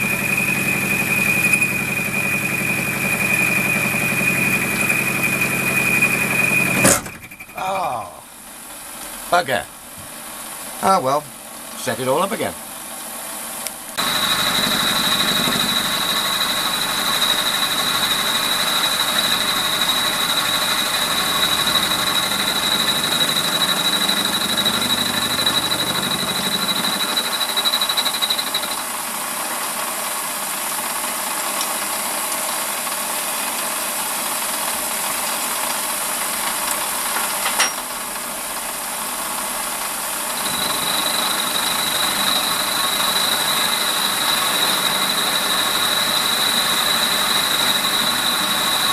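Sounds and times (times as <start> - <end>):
lathe running: 0.0 - 7.6, 13.9 - 29.4, 39.2 - 48.9
high steady whine: 0.0 - 8.6, 13.6 - 29.0, 39.8 - 48.9.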